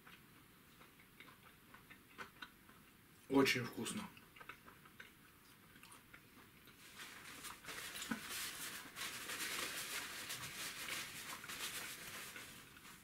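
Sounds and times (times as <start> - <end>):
faint chewing: 0.0 - 13.0
paper towel rustling: 6.8 - 13.0.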